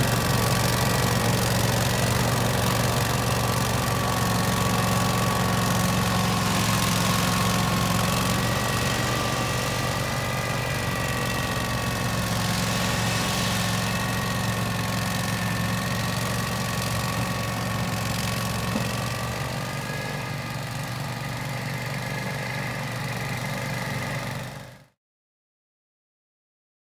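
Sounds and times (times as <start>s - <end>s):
ride-on mower engine: 0.0s - 25.0s
snow thrower high whine: 0.0s - 25.0s.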